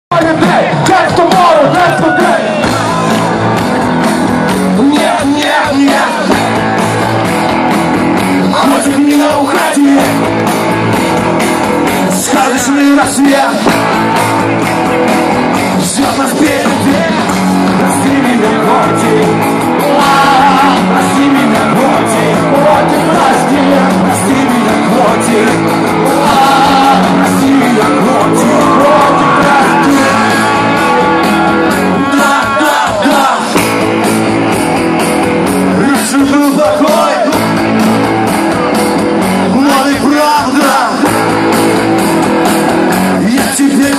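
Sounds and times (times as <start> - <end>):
lead singer singing: 0.1 - 7.2, 8.2 - 10.4, 11.8 - 14.6, 15.2 - 34.0, 35.7 - 38.2, 39.4 - 41.5, 43.2 - 43.9
rock band playing live: 0.1 - 43.9.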